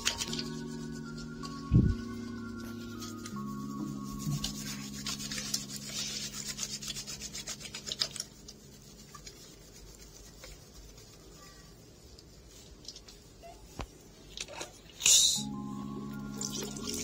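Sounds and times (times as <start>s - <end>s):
quick rhythmic rubbing: 0.0s - 13.4s.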